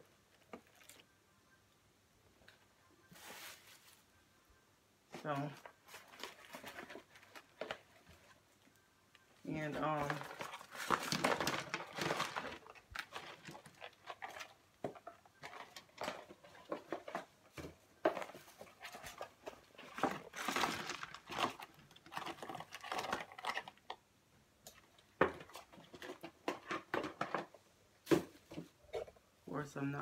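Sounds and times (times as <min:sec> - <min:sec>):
cardboard box handled and opened: 0:05.2 - 0:08.4, 0:09.4 - 0:23.8.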